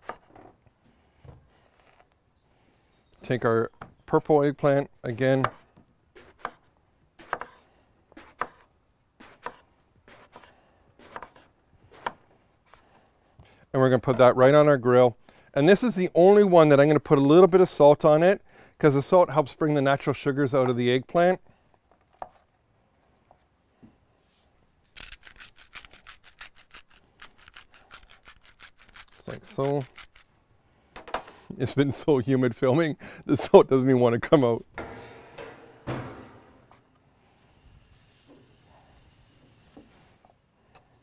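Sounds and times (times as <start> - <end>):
knife slicing eggplant: 6.2 - 7.6, 8.2 - 12.2.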